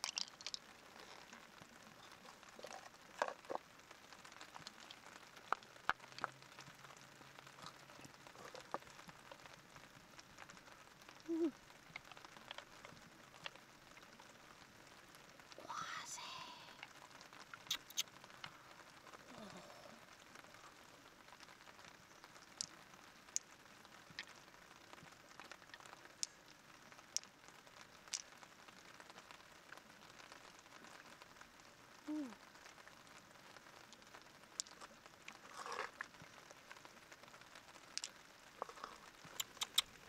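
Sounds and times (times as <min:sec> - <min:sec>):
low crackling hiss: 0:00.0 - 0:40.0
sharp clicks: 0:17.7 - 0:18.1, 0:39.3 - 0:40.0.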